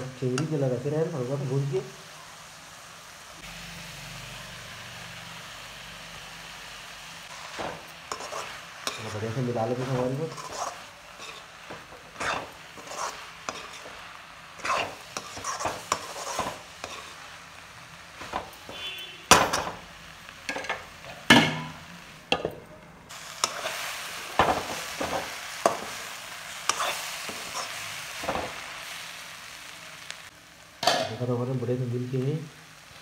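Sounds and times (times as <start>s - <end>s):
frying sizzle: 0.0s - 33.0s
steel spatula scraping pan: 7.3s - 14.0s, 14.6s - 17.2s, 23.4s - 23.8s, 26.6s - 28.4s.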